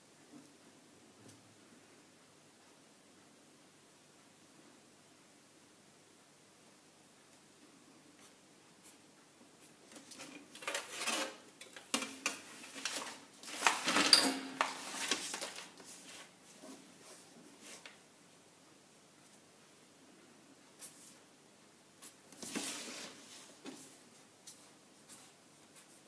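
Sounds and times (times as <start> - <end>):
paper rustling: 9.9 - 18.0, 22.0 - 26.0.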